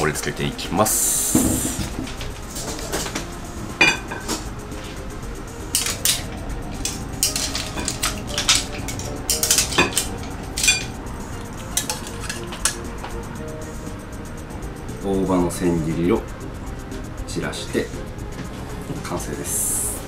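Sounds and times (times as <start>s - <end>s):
metal tongs clinking on pan and shells: 5.7s - 11.0s, 11.6s - 12.8s.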